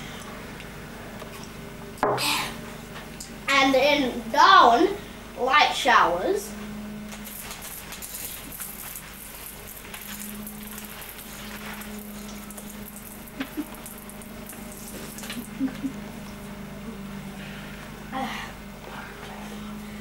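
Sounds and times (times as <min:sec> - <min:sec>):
low even hum: 0:00.0 - 0:20.0.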